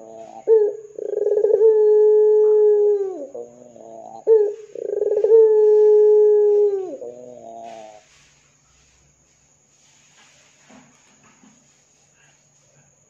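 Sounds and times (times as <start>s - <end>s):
dove cooing: 0.0s - 8.2s.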